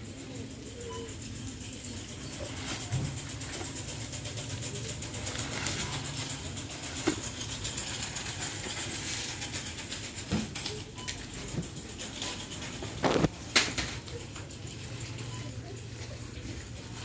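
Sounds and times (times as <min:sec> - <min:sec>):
knocks and rustles of produce: 0:02.4 - 0:10.8.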